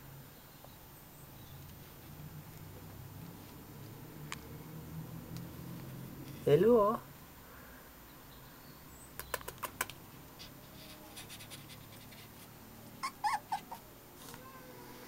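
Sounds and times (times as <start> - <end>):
puppy whimpering and whining: 13.0 - 13.9.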